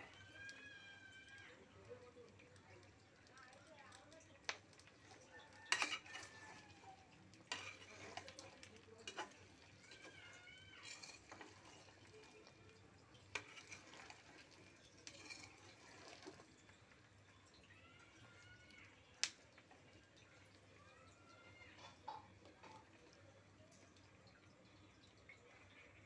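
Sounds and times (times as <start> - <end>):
metal spatula scraping pot: 4.8 - 16.8.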